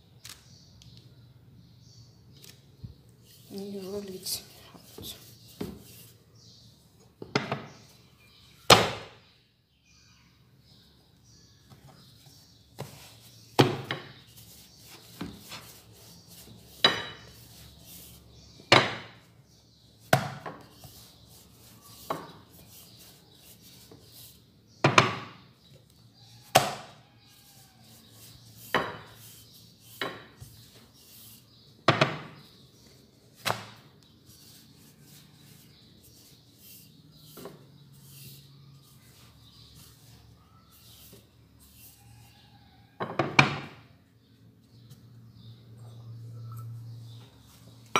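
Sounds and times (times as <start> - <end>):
soft rubbing of dough: 3.0 - 6.9, 11.6 - 24.7, 25.8 - 31.8, 32.4 - 43.0.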